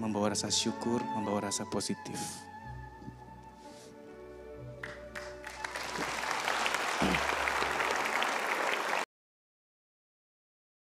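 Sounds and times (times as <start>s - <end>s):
soft background music: 0.0s - 6.7s
audience applauding: 4.8s - 9.1s.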